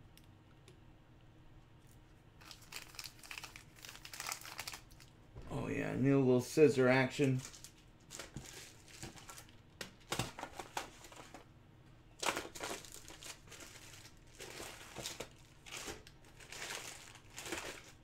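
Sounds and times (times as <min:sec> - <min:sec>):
foil wrapper crinkling: 0:02.4 - 0:05.1, 0:07.2 - 0:11.4, 0:12.2 - 0:18.0.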